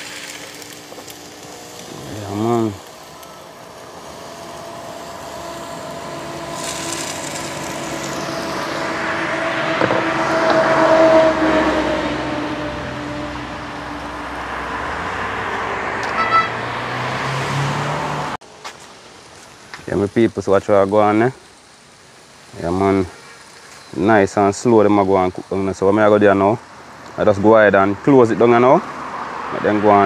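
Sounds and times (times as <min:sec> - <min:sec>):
fish burgers sizzling: 0:00.0 - 0:14.1, 0:18.4 - 0:27.4
vehicle passing by: 0:00.0 - 0:18.4, 0:25.7 - 0:30.0.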